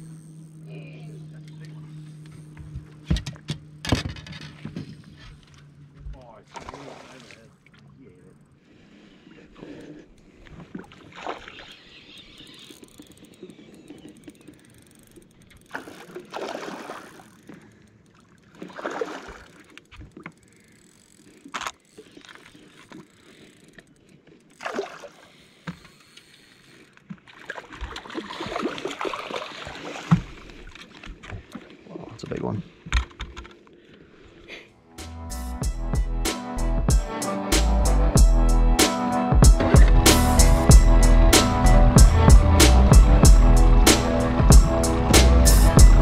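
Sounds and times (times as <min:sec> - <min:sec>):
water sloshing around boat: 0:00.0 - 0:34.8.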